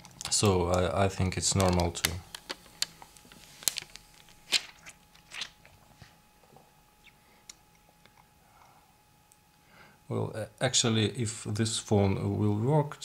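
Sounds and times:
plastic film crackling: 0.0 - 5.8.

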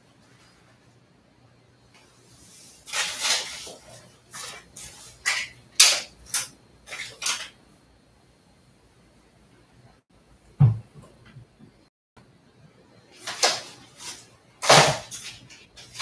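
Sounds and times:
household items rustling and knocking: 13.2 - 16.0.

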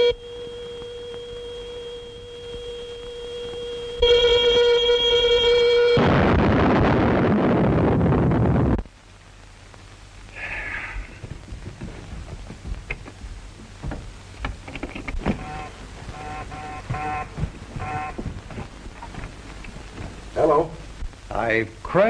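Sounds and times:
faint clatter: 10.9 - 15.4.

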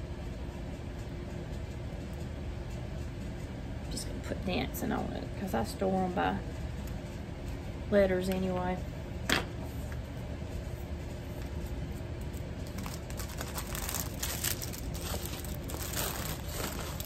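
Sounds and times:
plastic bags crinkling: 12.6 - 17.0.

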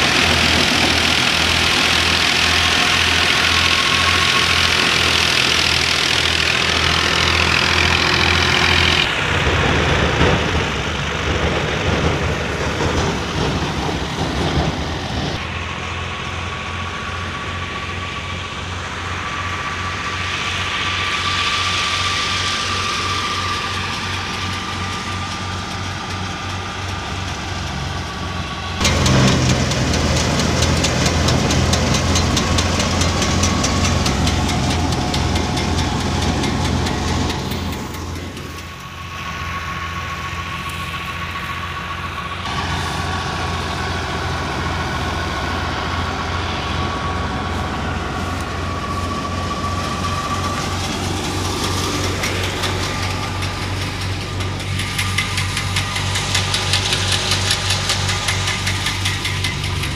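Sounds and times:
diesel tractor engine running: 0.0 - 59.9
steady whine: 0.0 - 59.9
thresher drum rushing hiss: 0.0 - 59.9.

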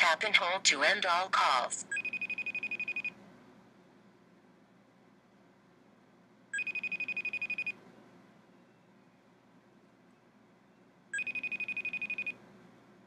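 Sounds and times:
electronic call ringtone trill: 1.9 - 3.1, 6.6 - 7.8, 11.2 - 12.4.

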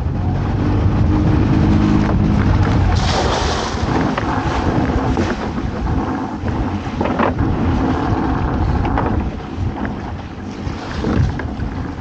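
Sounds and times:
strong wind buffeting microphone: 0.0 - 12.0.

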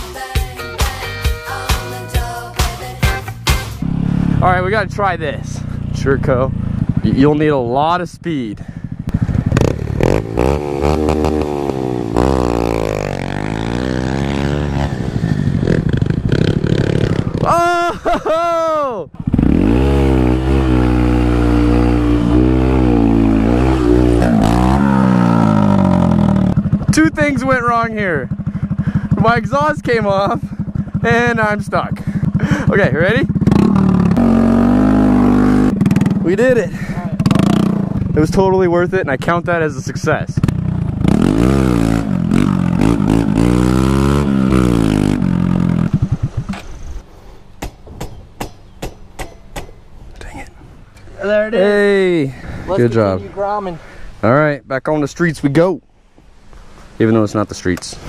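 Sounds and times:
motorcycle engine at high revs: 3.8 - 7.8, 8.7 - 17.4, 19.2 - 38.5, 40.3 - 47.0.

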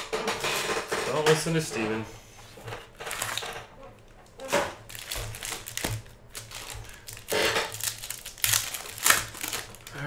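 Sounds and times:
foil wrappers crinkling and tearing: 3.0 - 3.6, 4.4 - 10.0.

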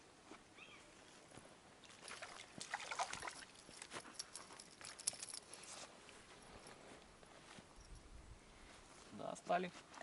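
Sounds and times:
water splashing: 1.8 - 3.9.

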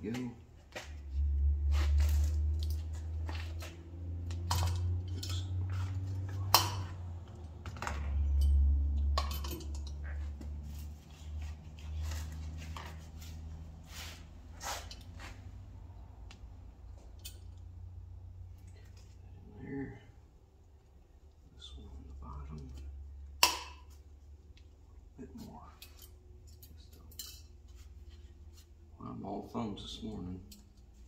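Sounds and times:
metallic clicks and clinks: 4.3 - 5.6, 8.2 - 10.1, 25.7 - 27.6.

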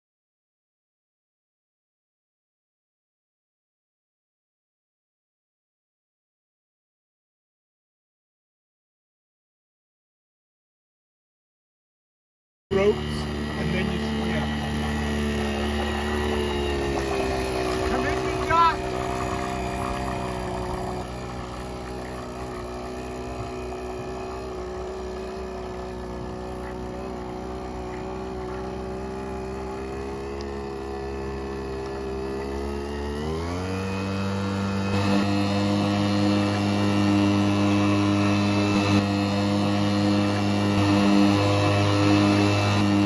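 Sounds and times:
outboard motor running: 12.7 - 43.0.

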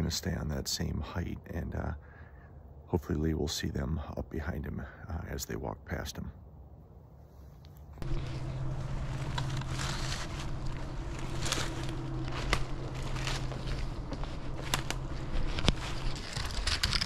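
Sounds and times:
steady low hum: 0.0 - 17.0
footsteps crunching dry leaves: 8.0 - 17.0.

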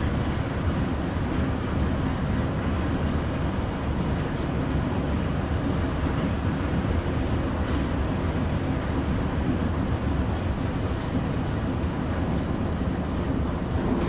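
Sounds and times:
escalators running: 11.0 - 14.0.

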